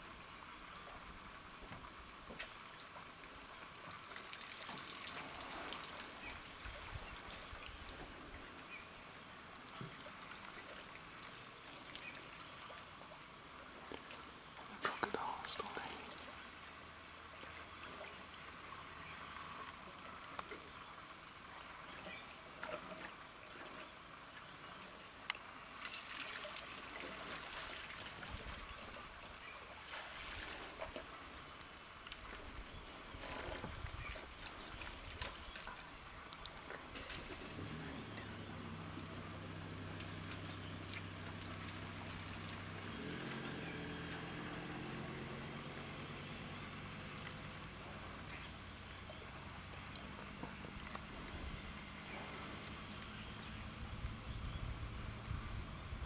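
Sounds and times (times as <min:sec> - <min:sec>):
water trickling and dripping: 0:00.6 - 0:32.8, 0:33.6 - 0:54.2
elephant trunks splashing water: 0:03.9 - 0:08.2, 0:25.6 - 0:53.4.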